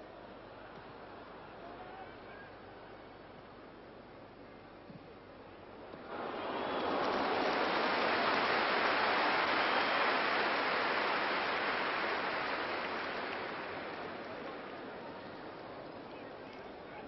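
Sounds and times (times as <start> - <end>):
stadium crowd roaring: 6.0 - 15.6.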